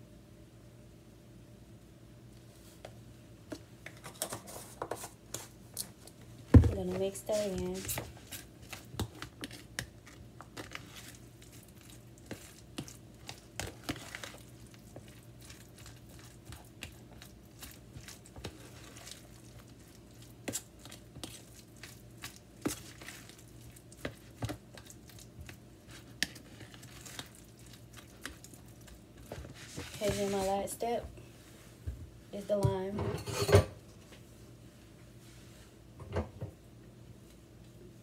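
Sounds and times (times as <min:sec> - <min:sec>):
spoon scraping plastic container: 0:03.9 - 0:05.5
spoon squishing mashed avocado: 0:07.3 - 0:30.4.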